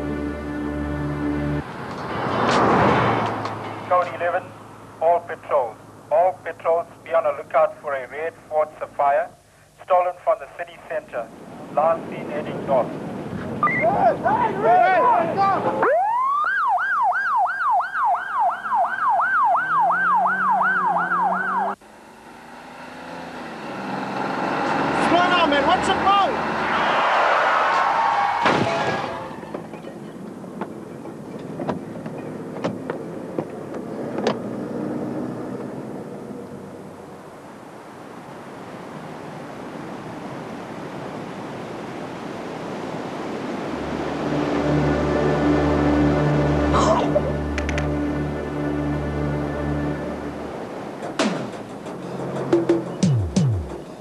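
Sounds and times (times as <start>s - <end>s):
wind: 0.0s - 54.0s
police siren yelping: 15.7s - 21.8s
surf rushing: 23.6s - 29.6s, 37.8s - 47.8s.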